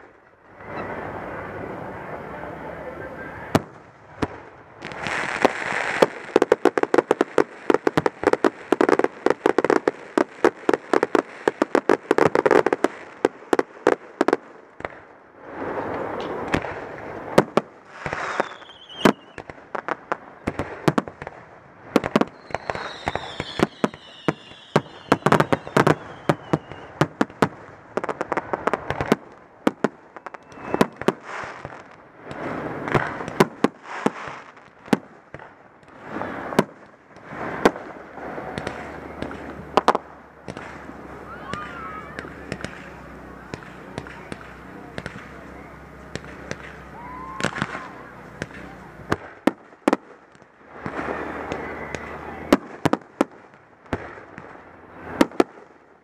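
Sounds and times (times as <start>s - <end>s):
fireworks bangs: 0.0s - 56.0s
firework whistles: 0.5s - 2.1s, 17.8s - 19.6s, 22.0s - 27.2s, 30.0s - 34.6s, 35.9s - 49.4s, 50.7s - 52.8s.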